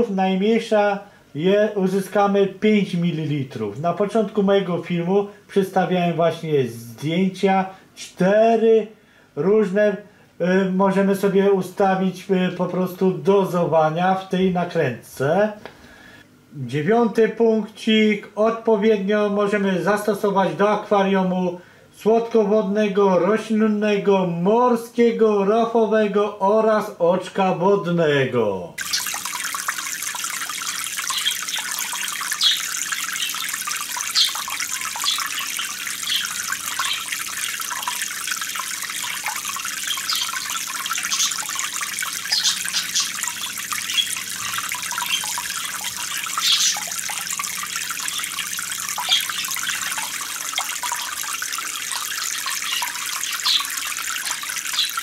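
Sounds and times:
aquarium water trickling: 0.0 - 16.2, 28.7 - 55.0
water drips: 28.8 - 55.0.

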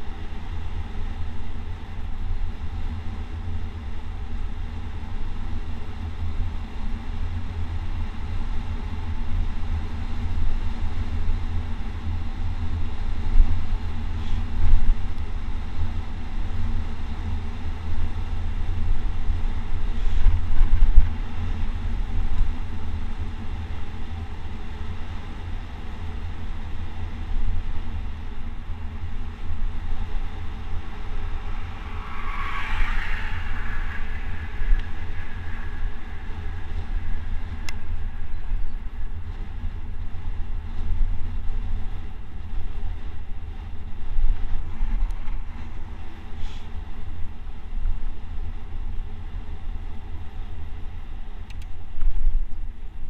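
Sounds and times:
road noise rumble: 0.0 - 53.0
wind buffeting microphone: 4.6 - 53.0
car passing: 29.0 - 40.0.

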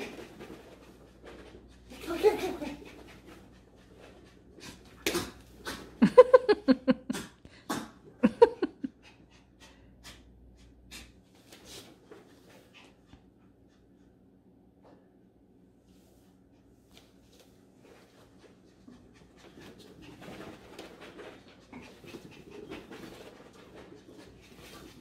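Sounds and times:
puppy huffing breaths: 8.8 - 11.2.

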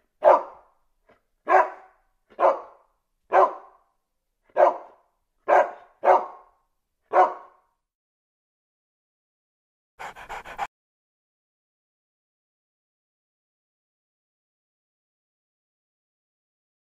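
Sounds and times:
puppy barking: 0.2 - 0.7, 1.5 - 3.8, 4.5 - 7.6.

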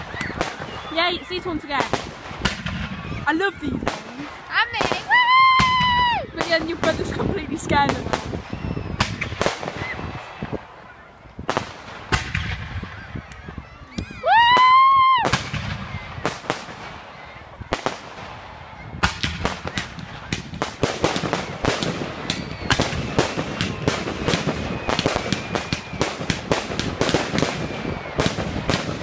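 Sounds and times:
fireworks bangs and cracks: 0.0 - 10.8, 11.4 - 13.4, 14.3 - 29.0
loud high-pitched whistle: 22.2 - 24.0.

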